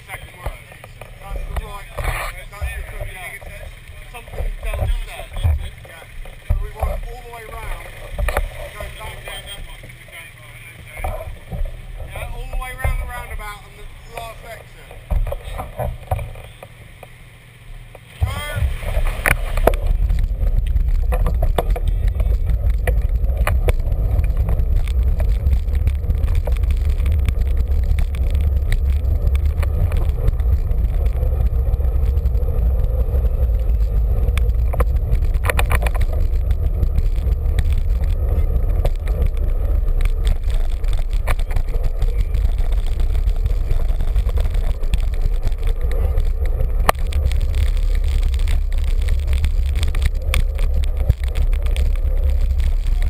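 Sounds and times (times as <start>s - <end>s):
wind buffeting microphone: 18.2s - 53.0s.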